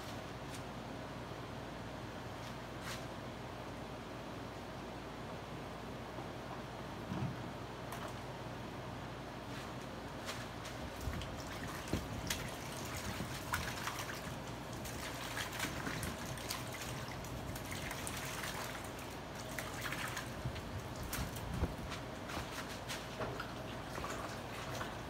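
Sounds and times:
liquid dripping and trickling: 10.9s - 22.7s, 23.3s - 25.0s.

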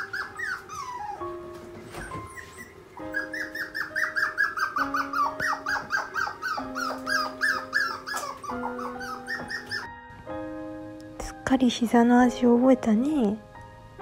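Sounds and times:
puppy whimpering yips: 0.0s - 9.9s
soft background music: 0.0s - 14.0s.

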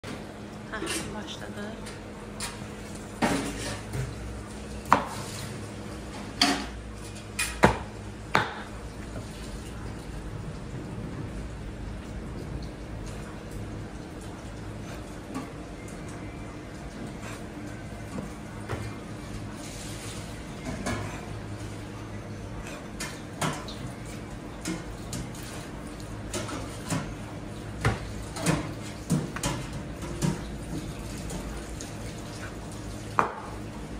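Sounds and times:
cleaver chopping meat on wood block: 7.6s - 8.7s
low hum: 8.7s - 14.6s.

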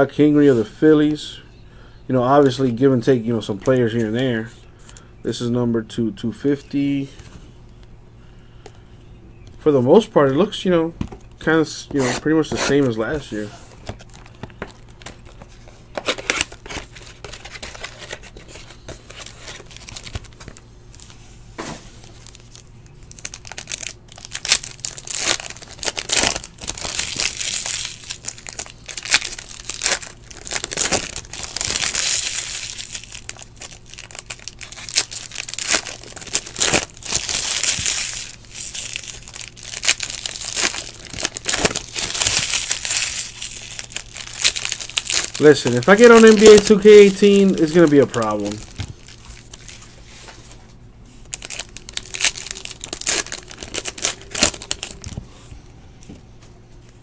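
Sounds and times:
plastic wrappers crinkling and tearing: 12.9s - 21.2s, 21.9s - 55.2s.

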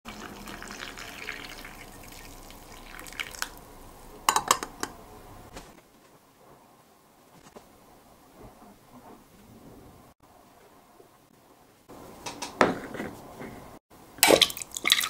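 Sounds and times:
water pouring into a glass cup: 0.1s - 3.6s, 14.4s - 15.0s.

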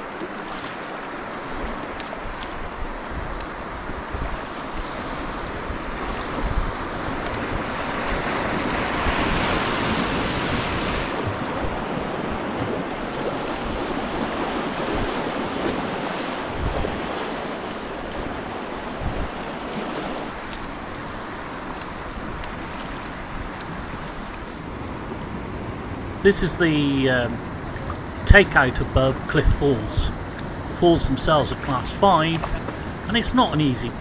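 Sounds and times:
wind thumps on microphone: 16.5s - 17.1s
whitewater rapids rushing: 25.8s - 34.0s.

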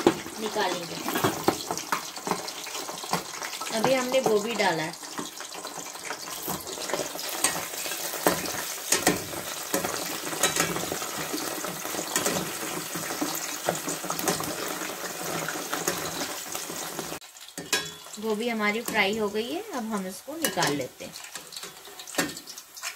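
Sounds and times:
food deep-frying in hot oil: 0.0s - 22.9s
spoon stirring: 5.1s - 14.5s.

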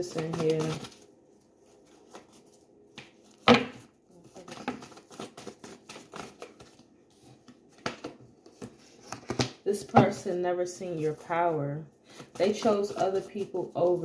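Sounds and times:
cards being shuffled: 0.0s - 14.0s.

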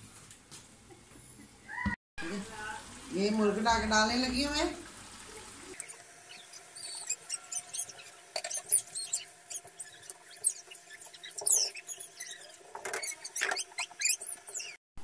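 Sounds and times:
spatula squeaking on pan: 5.8s - 14.8s.

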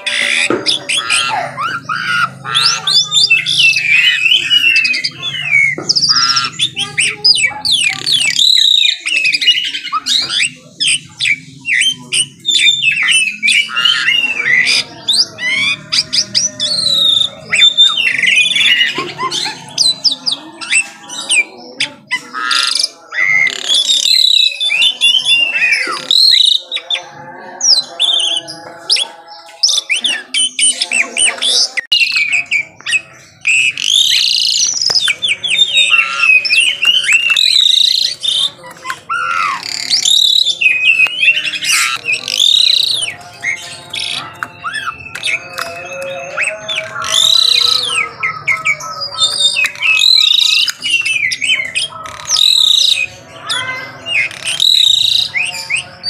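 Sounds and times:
bird singing whistled song: 0.0s - 56.0s.

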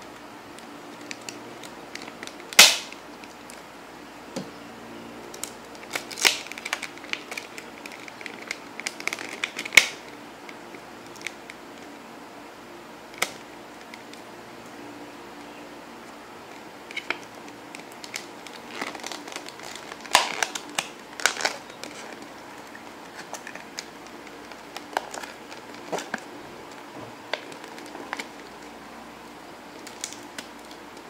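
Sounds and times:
plastic packaging clicking: 0.6s - 3.6s, 5.3s - 11.9s, 13.1s - 14.2s, 16.5s - 28.7s, 29.7s - 31.0s.

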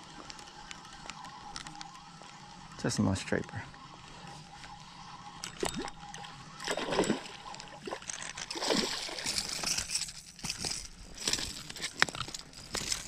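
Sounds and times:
fish splashing at water surface: 6.6s - 9.7s.

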